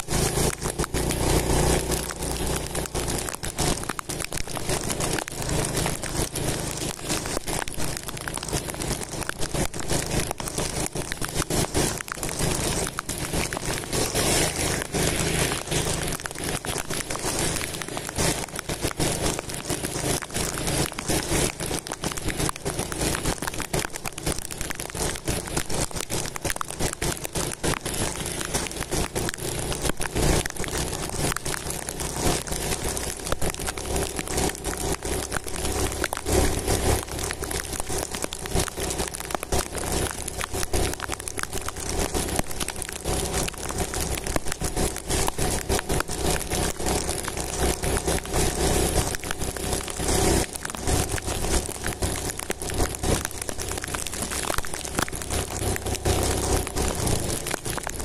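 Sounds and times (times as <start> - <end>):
motorcycle hum: 0.0 - 58.0
wind and rain on microphone: 0.0 - 58.0.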